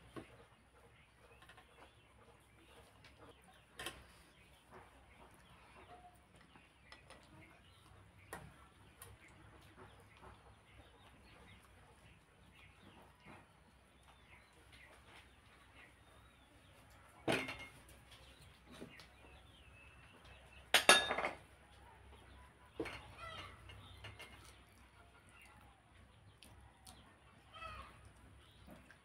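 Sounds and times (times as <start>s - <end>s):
soft eating sounds: 0.0s - 20.7s, 21.4s - 29.0s
dishes clattering: 17.2s - 17.9s, 20.7s - 21.5s.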